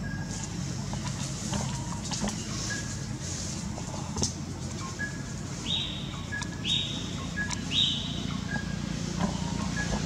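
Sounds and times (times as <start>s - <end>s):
bird chirps: 4.8s - 10.0s
bird whistling rising notes: 5.0s - 8.8s.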